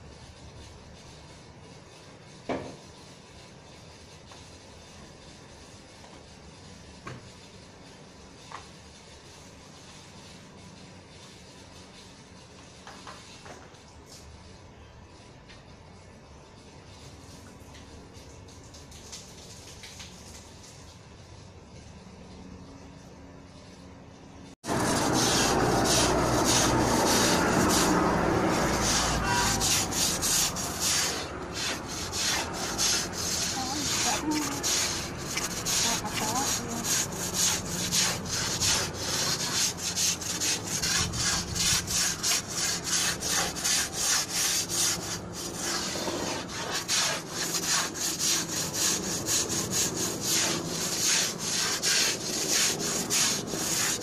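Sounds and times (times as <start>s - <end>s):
loud rushing noise: 24.6s - 34.0s
scrubber scraping wet concrete: 24.6s - 54.0s.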